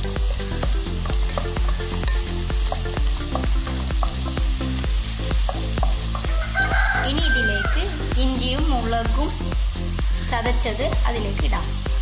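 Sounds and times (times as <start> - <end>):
background music with beat: 0.0 - 12.0
onions sizzling in a pan: 0.0 - 12.0
spatula stirring: 0.3 - 7.0
rooster crowing: 6.1 - 8.1.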